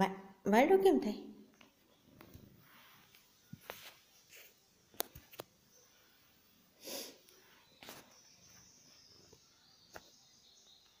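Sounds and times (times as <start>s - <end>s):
soft rustle: 1.7s - 10.1s.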